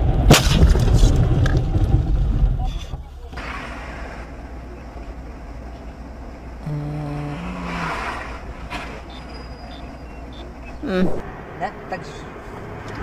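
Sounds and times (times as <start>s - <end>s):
car engine and road rumble: 0.0s - 13.0s
low tone rising in pitch: 6.6s - 8.3s.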